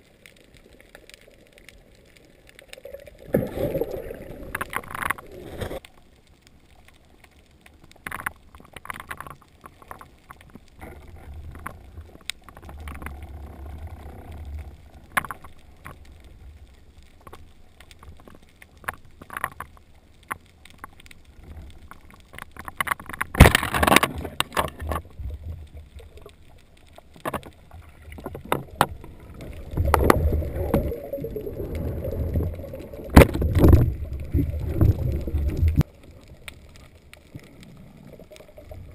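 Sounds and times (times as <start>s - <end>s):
underwater water movement: 0.0s - 38.9s
rush of water: 21.4s - 38.9s.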